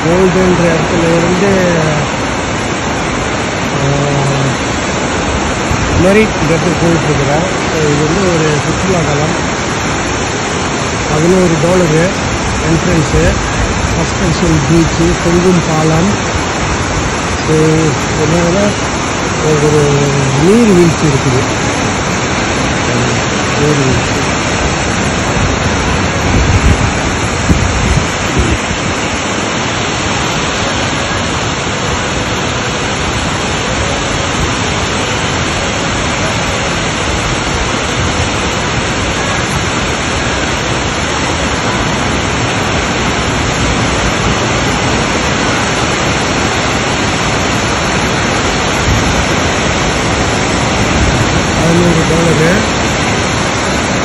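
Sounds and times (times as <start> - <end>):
waterfall rushing: 0.0 - 54.0
microphone bumps: 26.2 - 28.7.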